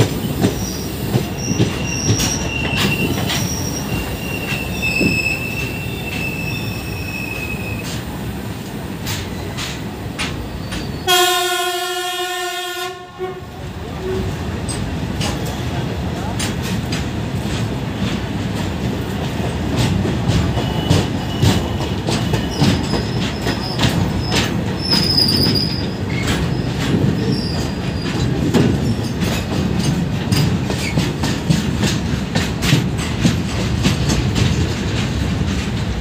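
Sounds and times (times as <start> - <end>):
train wheels rumbling on rail: 0.0 - 36.0
high wheel squeals: 0.2 - 8.0, 10.4 - 11.1, 20.4 - 28.2.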